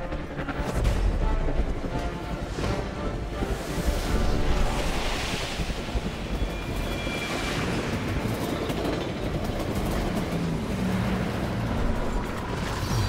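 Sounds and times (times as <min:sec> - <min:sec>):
train wheels on rails: 0:01.2 - 0:13.0.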